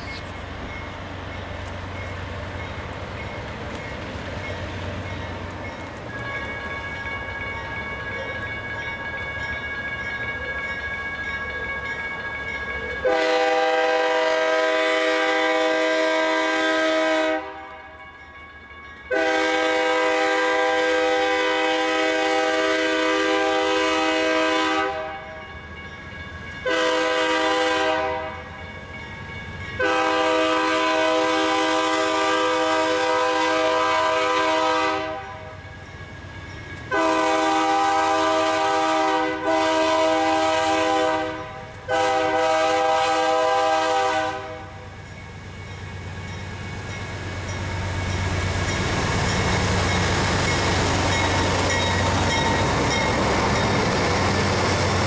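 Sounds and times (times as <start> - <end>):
crossing bell ringing: 0.0 - 55.0
freight train rumble: 0.0 - 55.0
locomotive air horn blasts: 13.0 - 17.7, 19.1 - 25.2, 26.6 - 28.4, 29.8 - 35.5, 36.9 - 44.8.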